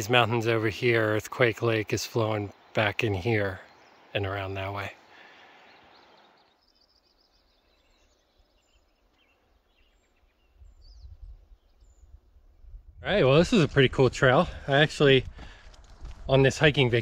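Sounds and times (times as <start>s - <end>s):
faint bird chirps: 1.0s - 13.0s
wind rumble on microphone: 10.4s - 14.2s, 14.9s - 17.0s.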